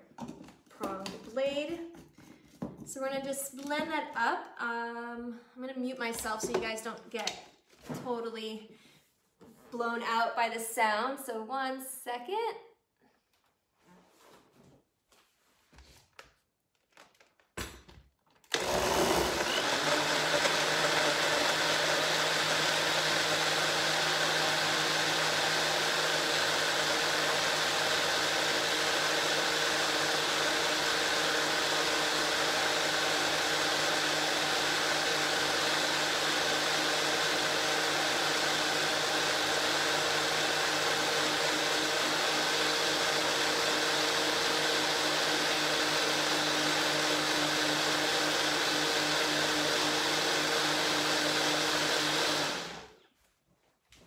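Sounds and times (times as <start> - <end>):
blender running: 18.4 - 53.0.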